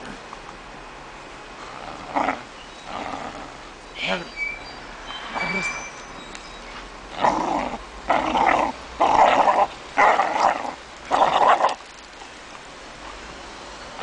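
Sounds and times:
dog growling: 0:01.6 - 0:03.7, 0:07.1 - 0:11.8.

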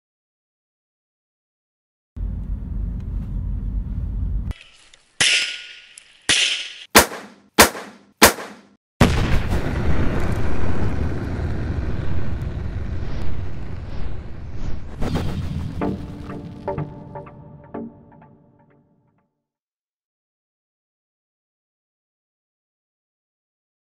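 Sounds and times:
sharp cracks: 0:04.5 - 0:08.8
gunshots: 0:05.2 - 0:09.7
low rumble: 0:09.6 - 0:16.7.

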